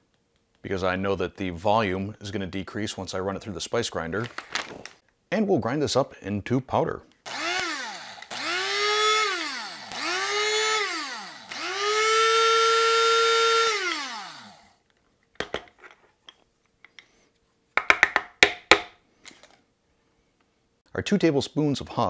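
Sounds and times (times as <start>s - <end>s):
spice grinder motor whining: 7.3s - 14.8s
grinder clicks and knocks: 15.4s - 17.1s.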